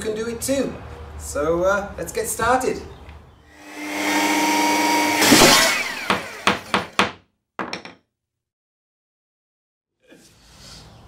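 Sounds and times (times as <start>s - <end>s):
whirring power tool: 3.6s - 6.8s
sharp knocks: 5.2s - 8.0s.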